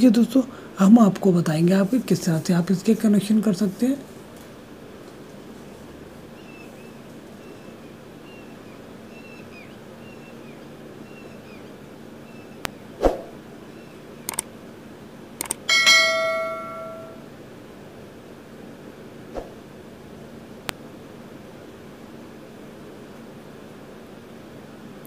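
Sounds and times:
faint steady hum: 0.0s - 25.0s
sharp clicks: 14.2s - 14.5s, 15.4s - 15.7s
metallic bell-like ring: 15.7s - 17.3s.

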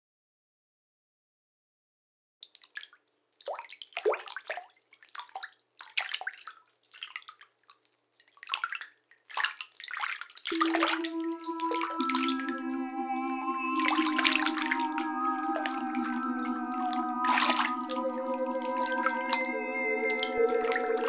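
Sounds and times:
liquid pouring and splashing: 2.4s - 12.7s, 13.8s - 21.0s
steady pitched tone: 10.5s - 21.0s.

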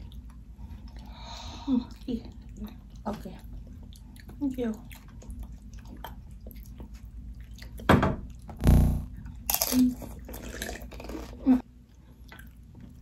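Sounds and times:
crunching and chewing chips: 9.3s - 11.6s.

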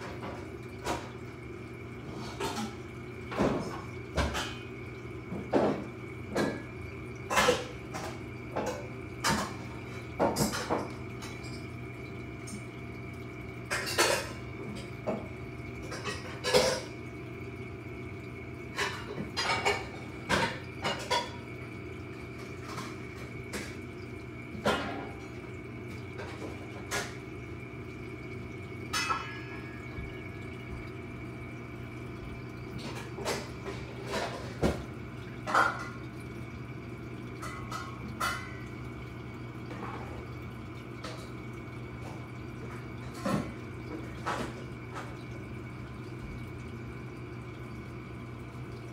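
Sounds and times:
aquarium equipment hum: 0.0s - 48.9s.

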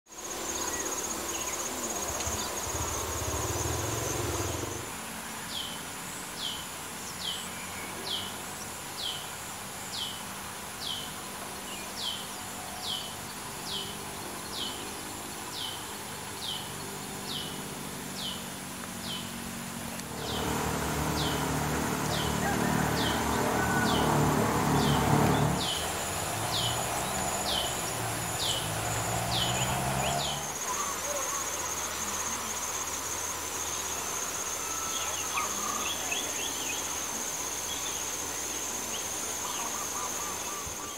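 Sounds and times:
insects shrilling: 19.8s - 40.9s.

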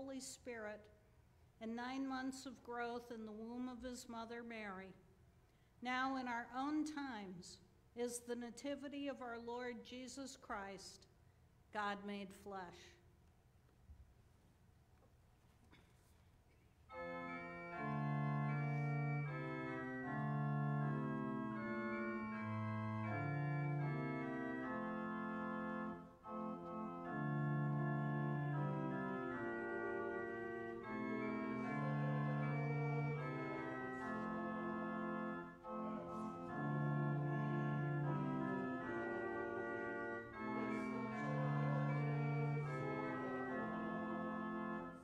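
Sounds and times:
church organ chords: 16.9s - 45.0s.

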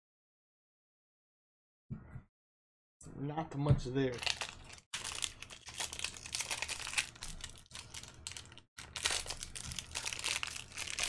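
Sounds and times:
foil wrapper crinkling and tearing: 4.1s - 11.0s.

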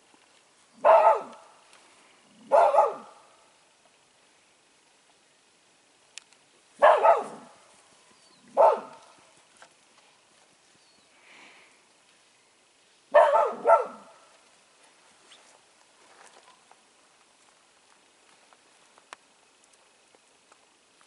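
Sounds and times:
dog barking: 0.8s - 1.4s, 2.4s - 3.3s, 6.8s - 7.6s, 8.5s - 9.0s, 13.1s - 14.2s.

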